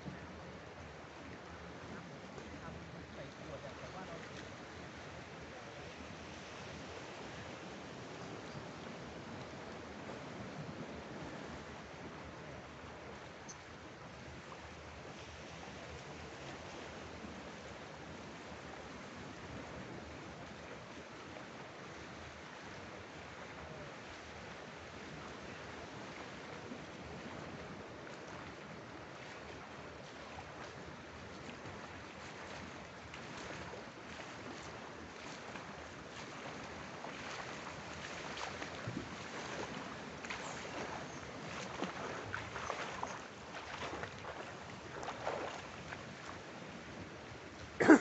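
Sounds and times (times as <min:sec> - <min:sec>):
swimming strokes splashing: 0:36.1 - 0:46.3.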